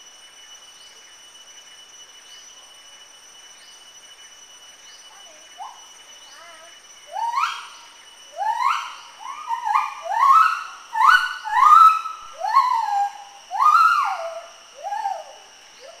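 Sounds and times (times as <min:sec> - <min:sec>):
gibbon whooping calls: 0:05.6 - 0:16.0.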